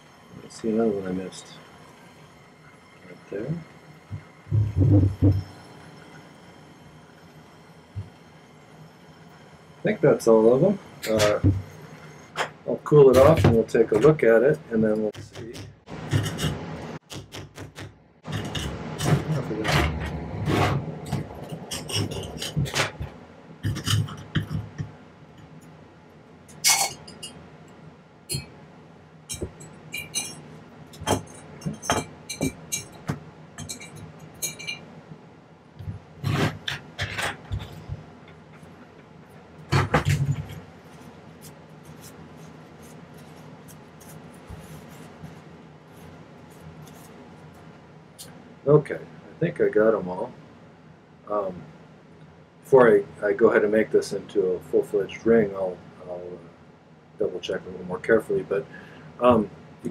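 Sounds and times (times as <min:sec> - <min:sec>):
metal tweezers clinking and scraping: 0:26.5 - 0:27.4, 0:29.3 - 0:30.5, 0:33.6 - 0:34.8.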